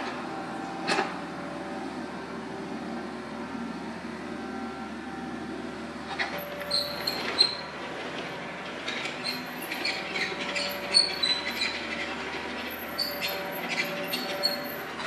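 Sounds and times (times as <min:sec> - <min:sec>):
diesel engine running: 0:00.0 - 0:15.0
high-pitched metal squeals: 0:06.2 - 0:07.8, 0:08.9 - 0:15.0.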